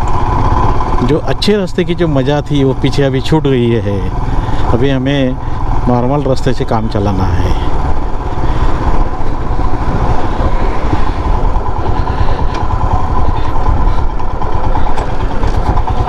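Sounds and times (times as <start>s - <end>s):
motorcycle engine running: 0.0s - 16.0s
wind rush on microphone: 7.7s - 16.0s.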